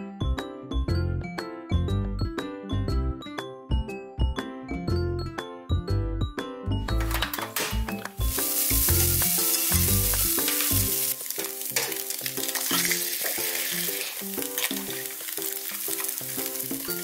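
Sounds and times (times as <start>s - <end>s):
background music: 0.0s - 17.0s
vegetables sizzling in frying pan: 8.2s - 17.0s
spatula stirring: 8.3s - 17.0s.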